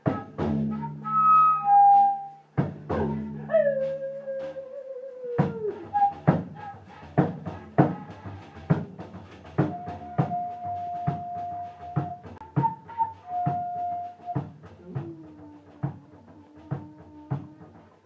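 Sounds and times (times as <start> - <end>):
drum strikes: 2.5 - 4.2, 5.4 - 18.0.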